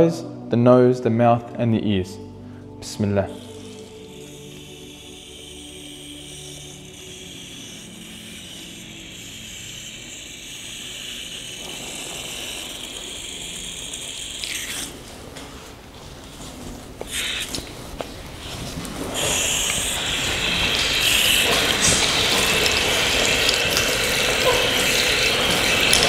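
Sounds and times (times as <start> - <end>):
running water splashing: 18.4 - 26.0.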